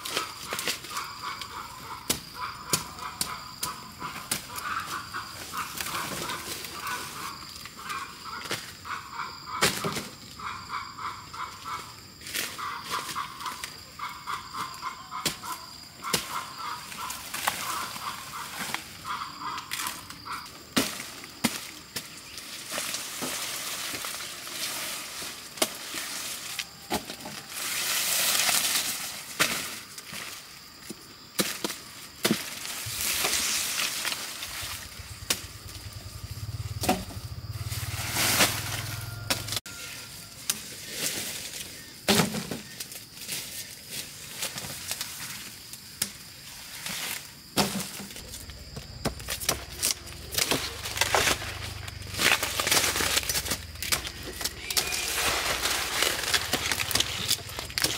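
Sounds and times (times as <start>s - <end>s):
machete cutting cane stalks: 14.5s - 18.8s, 20.8s - 30.3s, 31.4s - 35.8s, 36.8s - 39.8s, 40.4s - 57.9s
dry leaves rustling: 16.3s - 30.8s, 32.2s - 36.6s, 37.3s - 57.9s.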